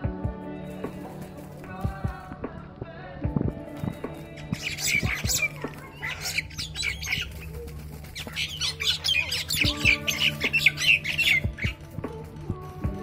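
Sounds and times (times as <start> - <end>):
background music with held notes: 0.0 - 13.0
ducks squawking: 4.2 - 12.0.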